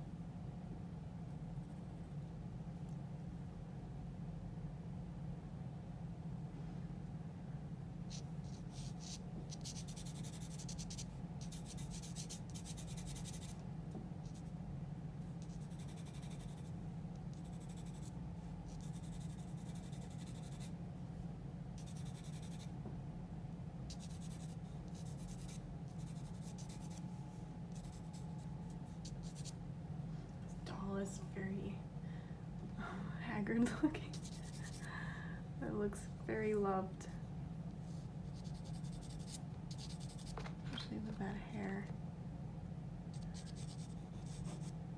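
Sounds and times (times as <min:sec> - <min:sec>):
steady low hum: 0:00.0 - 0:44.9
pencil scratching on paper: 0:08.1 - 0:13.6, 0:15.4 - 0:16.7, 0:17.3 - 0:18.1, 0:18.7 - 0:20.7, 0:21.8 - 0:22.7, 0:23.9 - 0:27.0, 0:27.7 - 0:28.3, 0:28.9 - 0:29.5, 0:34.1 - 0:34.8, 0:38.2 - 0:40.4, 0:43.1 - 0:44.8.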